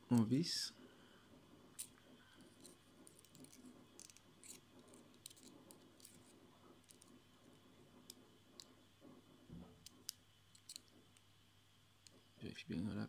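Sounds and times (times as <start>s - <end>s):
screwdriver clicking and scraping: 1.8s - 7.2s, 8.0s - 8.7s, 9.8s - 11.2s.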